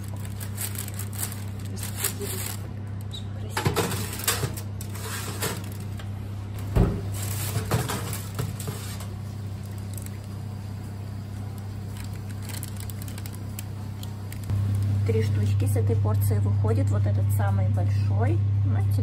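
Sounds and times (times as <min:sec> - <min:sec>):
baking paper rustling: 0:00.0 - 0:03.0, 0:03.6 - 0:06.1, 0:06.7 - 0:14.6
steady low hum: 0:00.0 - 0:19.0
metal baking tray clanking and scraping: 0:03.6 - 0:05.7.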